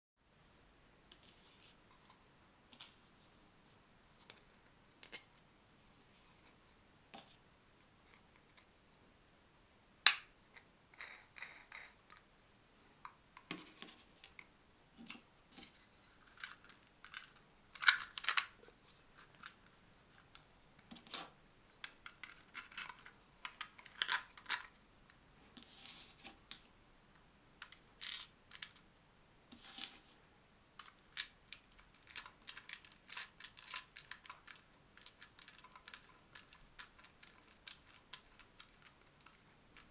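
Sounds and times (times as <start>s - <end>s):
plastic parts clicking and clattering: 13.4s - 24.8s, 27.6s - 28.8s, 30.8s - 39.9s.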